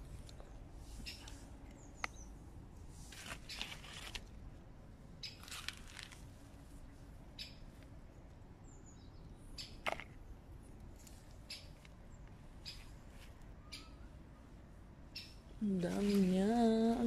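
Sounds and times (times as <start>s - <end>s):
plants rustling: 2.8s - 4.4s, 5.2s - 6.9s, 15.6s - 17.0s
faint bird chirps: 12.6s - 14.2s.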